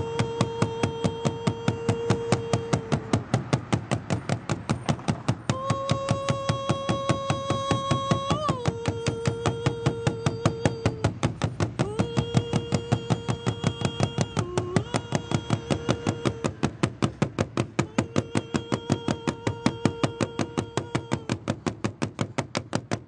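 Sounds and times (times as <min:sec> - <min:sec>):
person singing long held note: 0:00.0 - 0:03.4, 0:05.5 - 0:11.2, 0:11.8 - 0:17.0, 0:17.8 - 0:21.6
hand drum fast strokes: 0:00.0 - 0:23.0.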